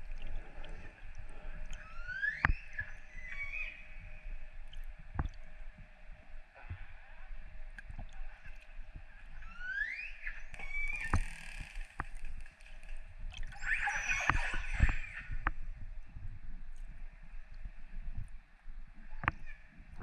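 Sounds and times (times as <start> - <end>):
underwater noise: 0.0 - 20.0
clicks underwater: 4.7 - 5.5.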